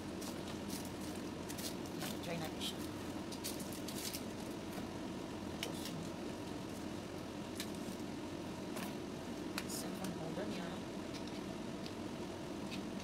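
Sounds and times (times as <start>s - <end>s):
low room hum: 0.0s - 13.0s
plastic wrapping crinkling: 0.1s - 4.8s.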